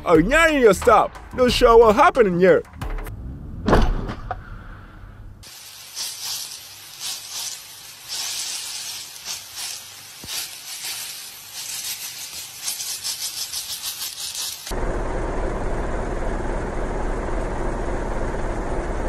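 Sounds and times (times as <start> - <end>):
oil sizzling in a frying pan: 5.4 - 14.7.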